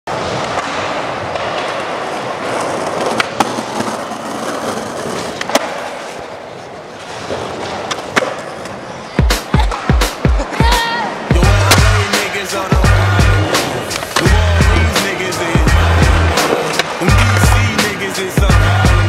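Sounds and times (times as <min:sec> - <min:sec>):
skateboard clacking on ground: 0:00.1 - 0:10.9, 0:15.0 - 0:18.3
skateboard wheels rolling: 0:00.1 - 0:19.0.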